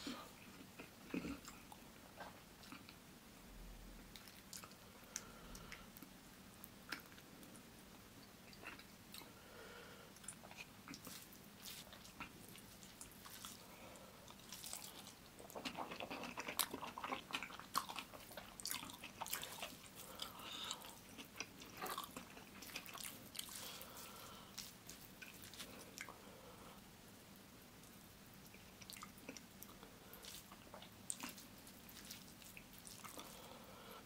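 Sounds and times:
person chewing: 0.2s - 3.0s, 8.4s - 9.4s, 10.2s - 26.3s, 27.8s - 33.6s.

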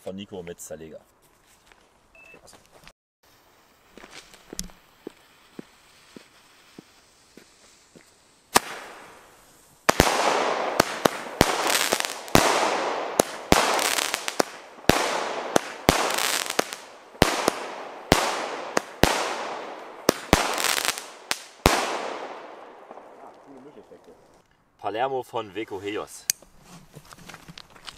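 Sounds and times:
firework bangs: 3.3s - 24.4s.

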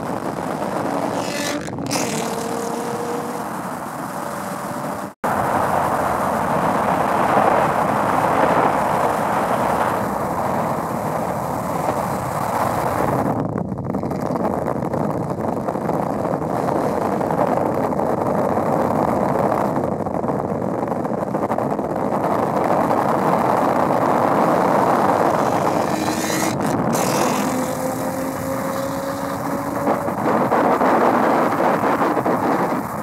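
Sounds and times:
car engine cruising: 0.0s - 13.0s, 24.0s - 33.0s
road and wind noise: 0.0s - 33.0s.

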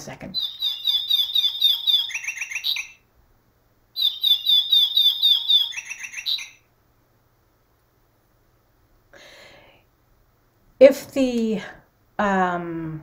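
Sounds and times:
recorded nightingale song from speaker: 0.0s - 3.1s, 3.9s - 6.8s.

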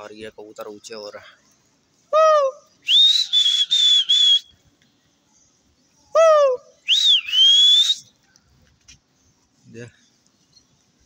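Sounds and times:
loud breathy whistles: 2.8s - 4.5s.

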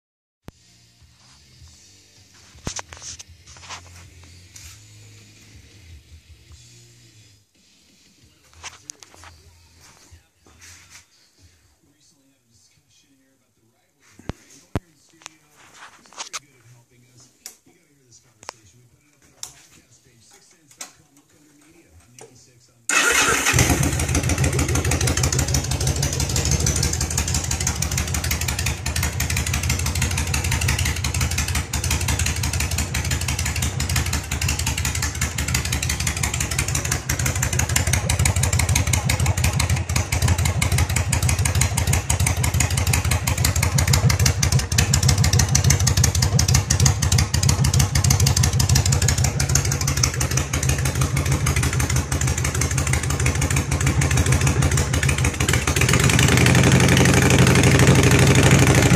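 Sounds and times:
motorcycle engine idling: 22.9s - 58.9s.

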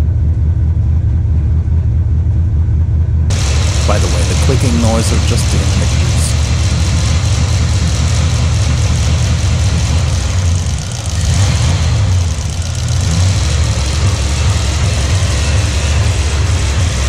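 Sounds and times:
engine running rough: 0.0s - 17.0s.

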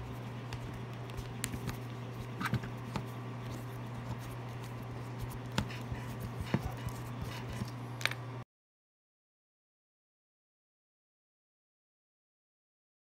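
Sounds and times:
steady low hum: 0.0s - 8.4s.

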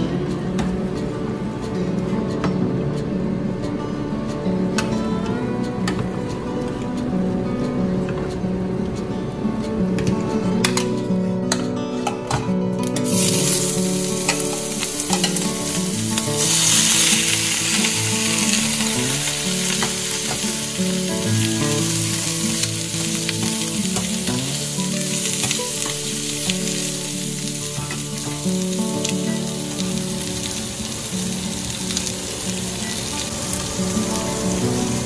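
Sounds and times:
pork sizzling in a pot: 13.0s - 35.0s.

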